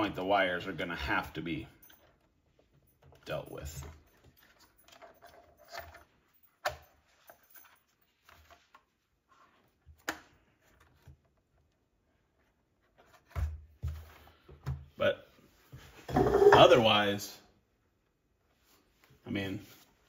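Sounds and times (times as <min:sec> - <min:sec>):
faint handling noises: 0:01.7 - 0:16.8.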